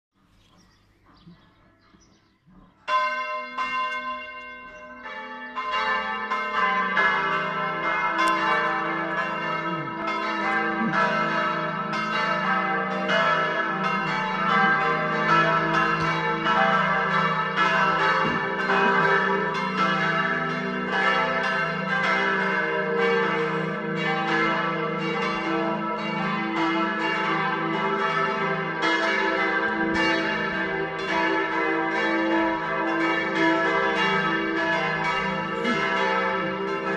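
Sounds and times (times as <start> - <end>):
church bells pealing: 1.0 - 36.9.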